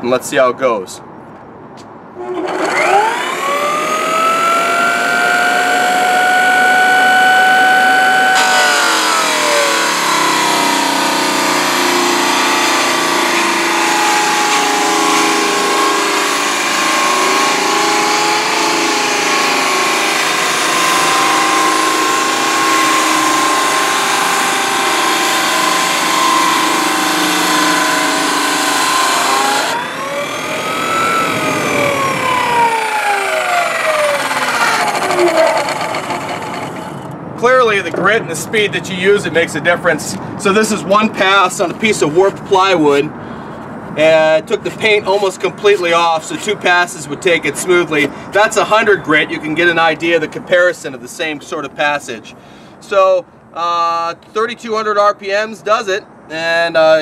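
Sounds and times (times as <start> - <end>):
floor sander motor whine: 2.2 - 37.2.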